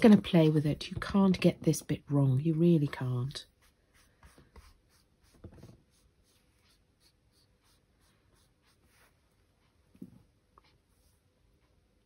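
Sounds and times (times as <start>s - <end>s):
paintbrush rubbing on wet card: 3.3s - 9.3s.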